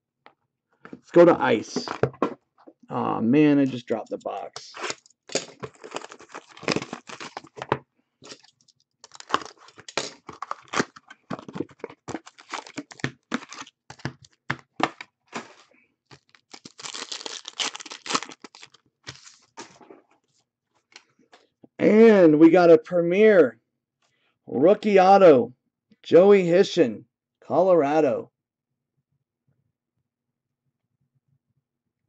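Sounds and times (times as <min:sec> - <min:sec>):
paper and foil crinkling: 0:04.8 - 0:19.8.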